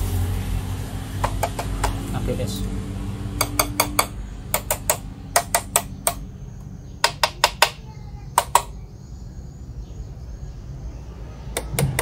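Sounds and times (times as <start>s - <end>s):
metal tool tapping toy truck: 3.4s - 6.2s, 7.0s - 7.8s, 8.4s - 8.8s.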